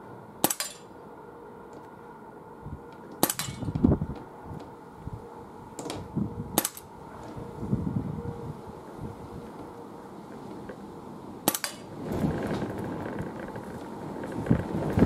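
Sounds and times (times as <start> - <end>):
wind buffeting microphone: 2.6 - 9.8, 11.8 - 15.0
suppressed pistol shots: 3.2 - 3.6.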